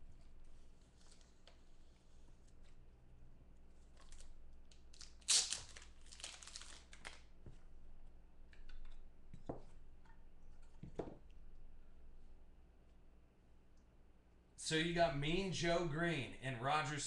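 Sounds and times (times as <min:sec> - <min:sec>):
plastic cases crinkling: 0:04.9 - 0:07.3.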